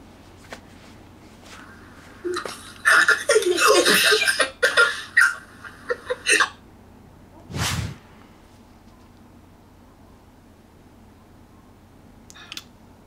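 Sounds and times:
short burst of noise: 7.5s - 8.2s.

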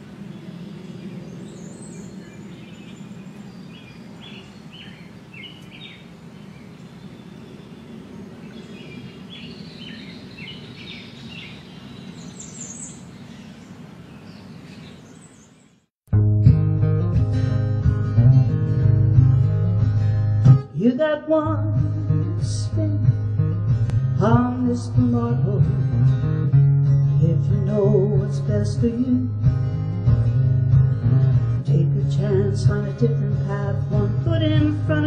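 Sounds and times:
small birds chirping: 0.0s - 15.9s
thin high bird calls: 0.2s - 15.8s
low outdoor rumble: 16.3s - 35.0s.

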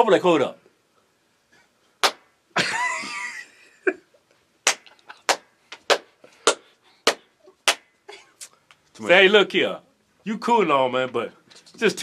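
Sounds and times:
sharp slaps: 2.0s - 2.3s, 4.6s - 7.9s
person laughing: 2.6s - 4.2s, 4.8s - 5.3s.

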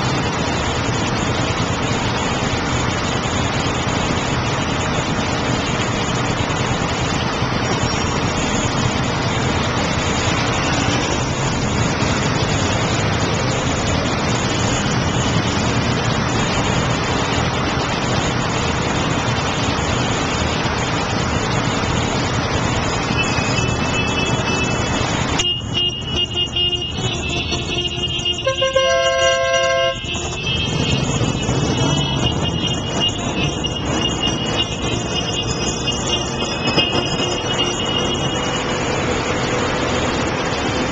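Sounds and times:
city street traffic roar: 0.0s - 40.9s
car horns honking: 23.2s - 38.8s.

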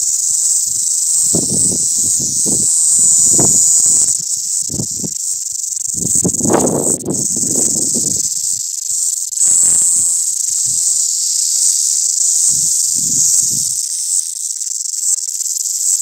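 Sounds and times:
cicadas buzzing: 0.0s - 16.0s
low microphone rumbles: 1.1s - 5.2s, 5.9s - 8.6s.

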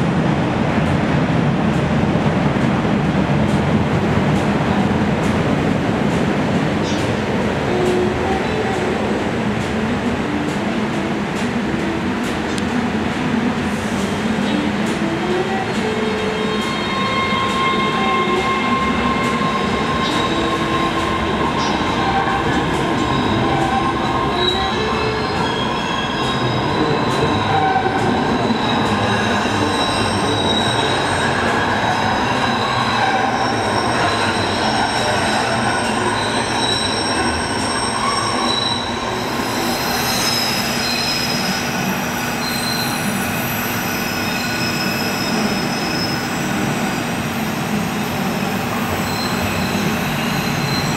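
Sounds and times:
subway train rumbling: 0.0s - 50.9s
train wheels squealing: 16.1s - 50.9s.

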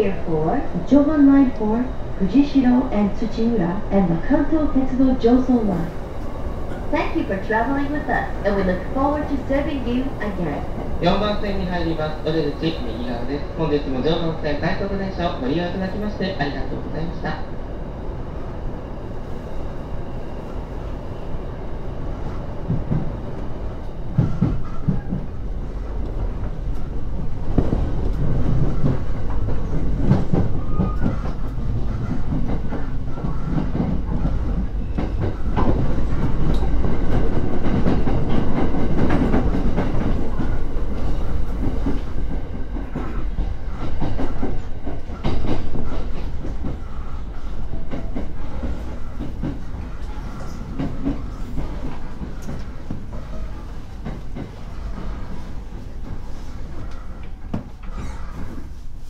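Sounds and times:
train carriage rumble: 0.0s - 59.0s
wheels clacking over rail joints: 23.9s - 58.8s.

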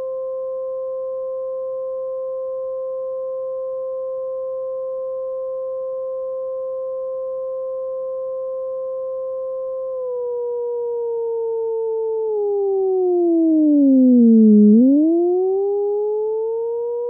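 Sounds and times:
fainter higher synth tone: 11.8s - 17.0s.

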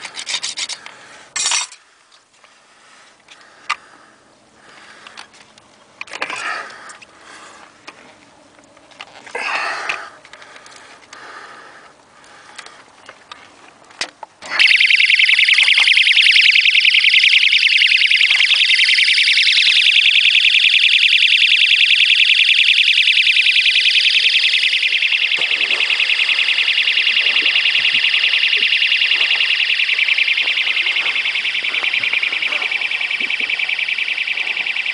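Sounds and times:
warbling electronic alarm siren: 14.5s - 34.9s.

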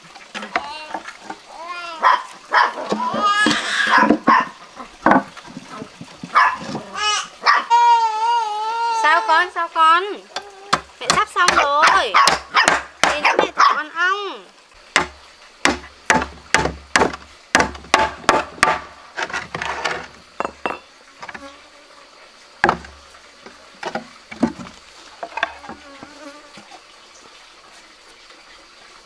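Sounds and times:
faint insect hum: 0.0s - 29.0s
knocks of wooden box handled: 2.9s - 6.8s, 15.0s - 19.7s, 22.6s - 23.0s.

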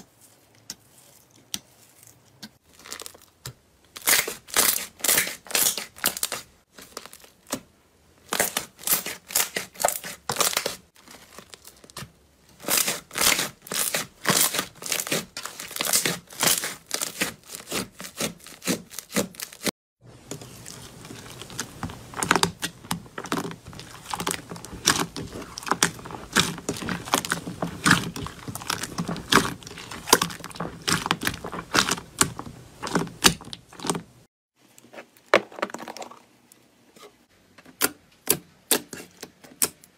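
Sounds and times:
slime crackling and popping: 12.6s - 19.7s, 20.3s - 34.1s.

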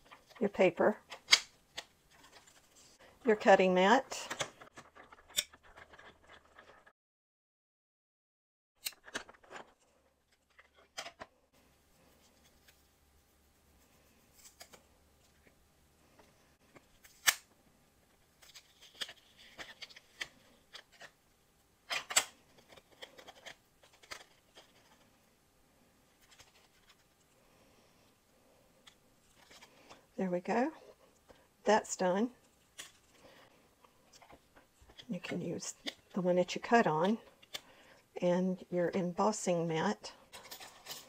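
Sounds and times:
papery rustling: 4.2s - 6.9s, 18.3s - 21.2s, 22.5s - 25.1s.

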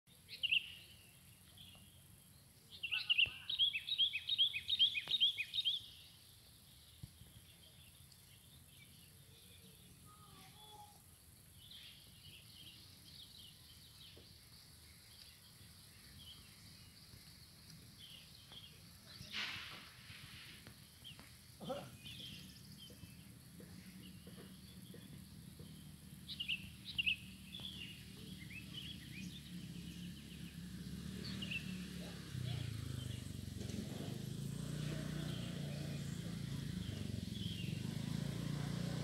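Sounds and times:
bird chirping: 0.2s - 38.9s
brief rush of noise: 19.2s - 20.6s.

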